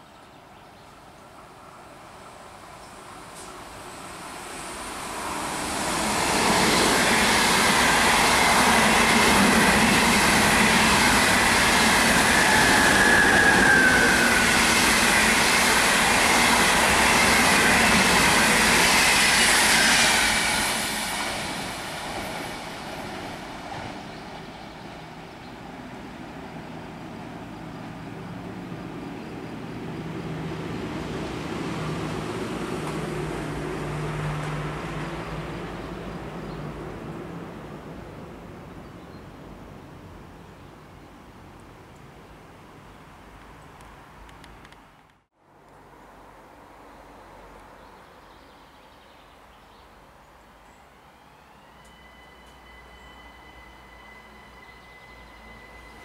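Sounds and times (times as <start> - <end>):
train wheels rushing on rail: 2.2 - 38.2, 51.2 - 56.0
high squeal: 11.0 - 20.7, 51.2 - 56.0.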